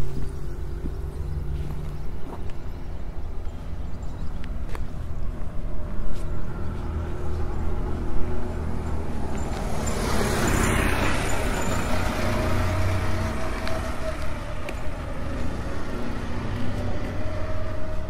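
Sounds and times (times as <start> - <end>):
low engine hum: 0.0 - 18.0
car passing by: 6.2 - 18.0.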